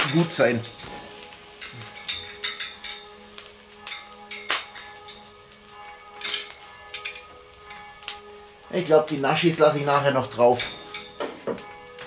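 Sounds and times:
quiet background music: 0.0 - 12.0
metal tongs clicking on grill grate: 0.8 - 5.2, 6.2 - 7.8.

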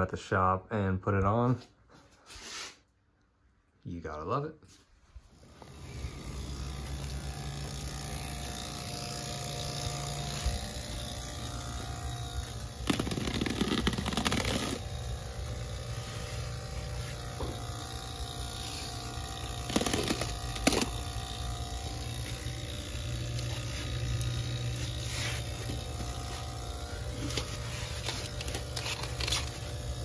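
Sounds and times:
low machine hum: 5.3 - 30.0.

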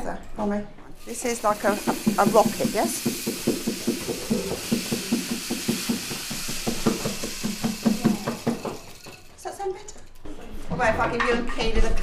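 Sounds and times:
rainstick beads pouring: 1.0 - 9.4
hand drum tapping: 1.6 - 9.2.

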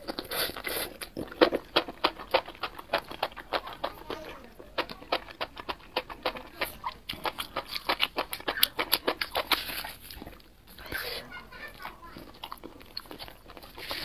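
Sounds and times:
wet chewing smacks: 0.0 - 14.0.

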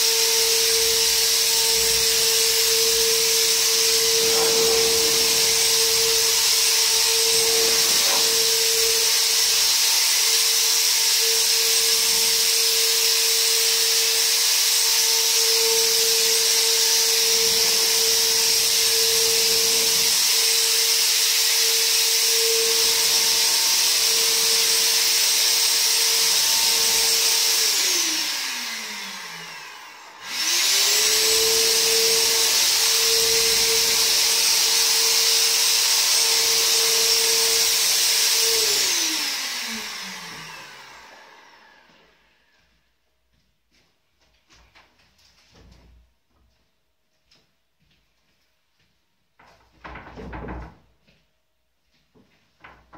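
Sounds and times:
fogger motor whine: 0.0 - 13.2
blower hiss: 0.0 - 14.2.

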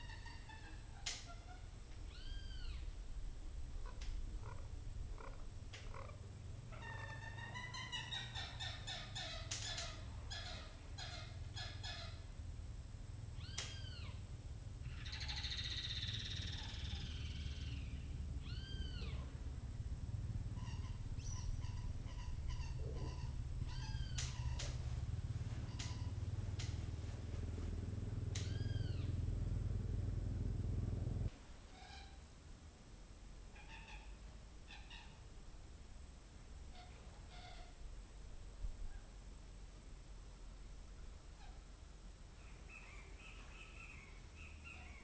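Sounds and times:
bird calling: 0.0 - 12.4, 13.4 - 29.8, 42.4 - 45.0.

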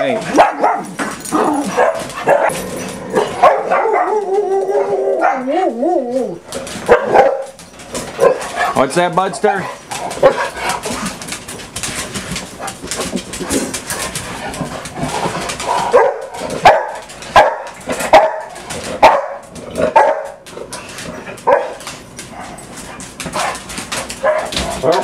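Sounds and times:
dog barking: 0.3 - 1.0, 1.6 - 2.5, 3.4 - 4.1, 5.2 - 5.5, 6.9 - 7.6, 8.2 - 8.4, 15.9 - 19.4, 20.0 - 20.4, 21.4 - 21.8, 24.2 - 24.6.

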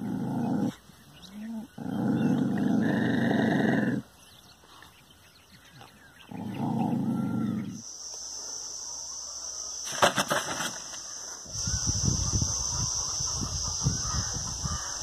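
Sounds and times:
dog growling low: 0.0 - 4.1, 6.2 - 7.8.

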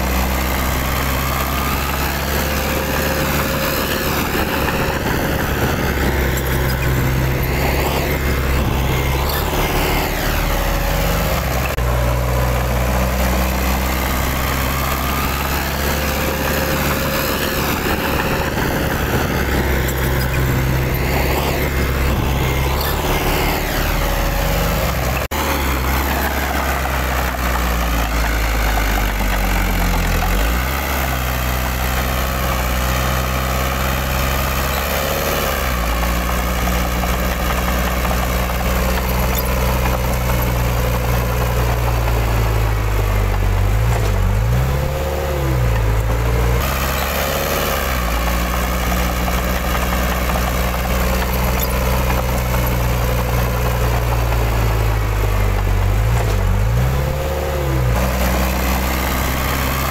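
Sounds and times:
heavy diesel engine revving: 0.0 - 59.9.

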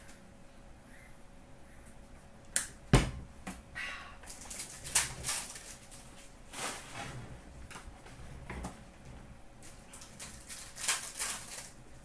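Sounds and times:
cards rustling: 9.7 - 11.8.

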